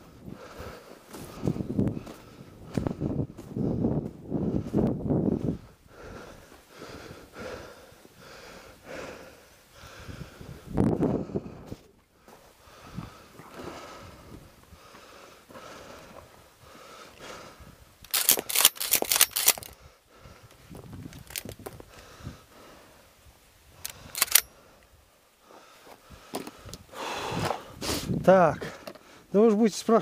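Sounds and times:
sharp clicks and rattles: 18.0 - 19.8, 21.1 - 21.8, 23.8 - 24.5.

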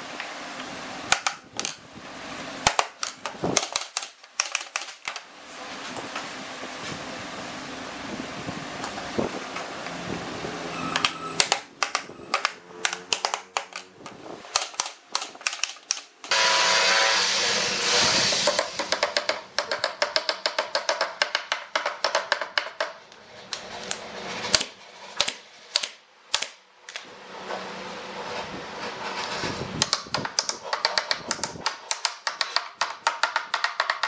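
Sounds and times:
loud steady noise with hum: 0.0 - 4.0, 5.1 - 19.8, 23.0 - 30.5
hammer tapping on wooden boards: 11.4 - 13.8, 18.5 - 23.0, 29.8 - 34.0.

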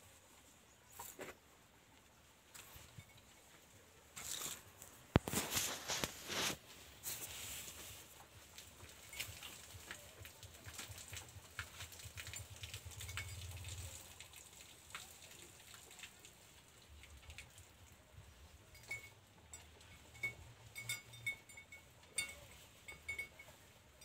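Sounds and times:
straw rustling and crackling: 2.5 - 15.6.

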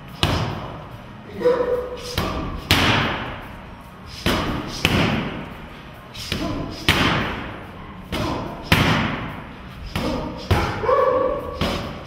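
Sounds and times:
boxing gloves hitting focus mitts: 0.2 - 0.7, 2.0 - 3.4, 4.1 - 5.5, 6.2 - 7.5, 8.1 - 9.3.

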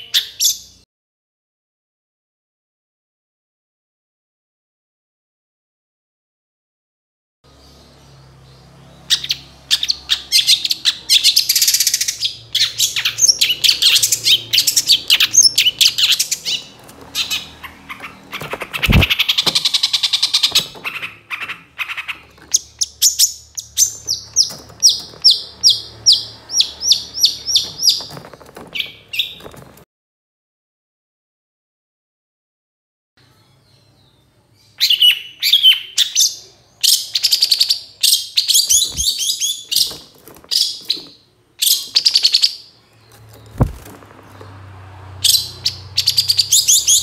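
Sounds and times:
bird singing scratchy chatter: 7.7 - 29.8, 33.2 - 47.0.

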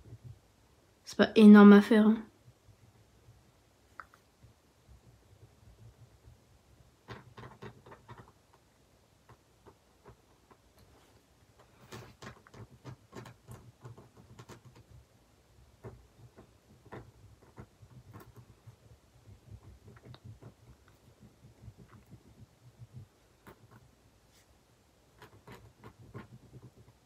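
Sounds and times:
faint low hum: 0.0 - 27.0
pen scratching on paper: 7.0 - 8.4, 15.8 - 24.5, 25.1 - 27.0.

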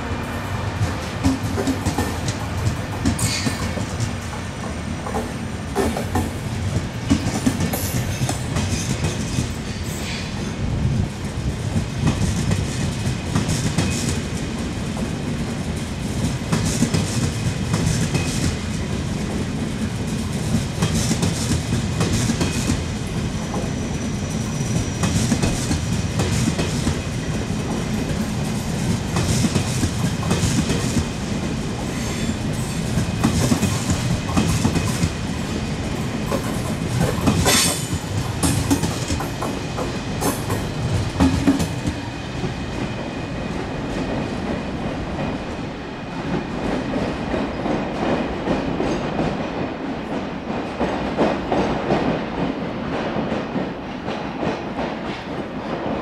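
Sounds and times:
train rumble: 0.0 - 56.0
wheels clacking over rail joints: 0.8 - 9.6, 32.5 - 35.2, 35.9 - 42.5.

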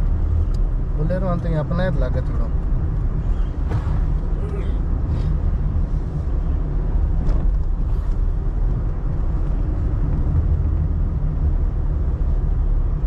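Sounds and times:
moving vehicle rumble: 0.0 - 13.0.

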